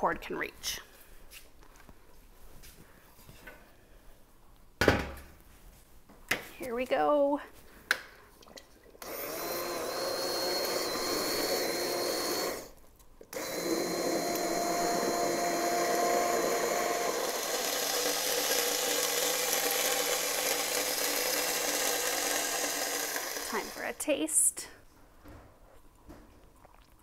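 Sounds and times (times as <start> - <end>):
immersion blender whining: 9.0 - 24.0.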